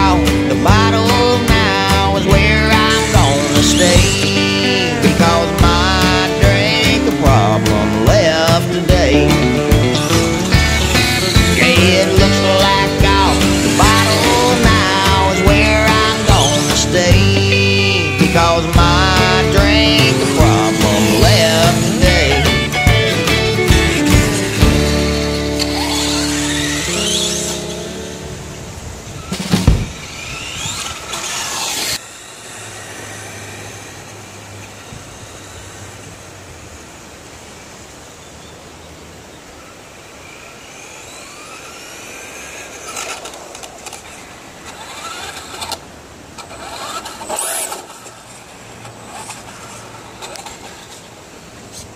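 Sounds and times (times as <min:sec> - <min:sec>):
electric motors whining: 0:00.0 - 0:51.9
loud thump: 0:29.4 - 0:30.0.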